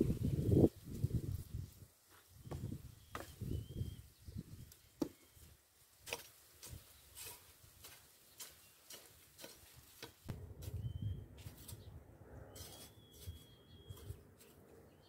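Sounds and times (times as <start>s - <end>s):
hoe scraping dry soil: 6.0s - 15.0s.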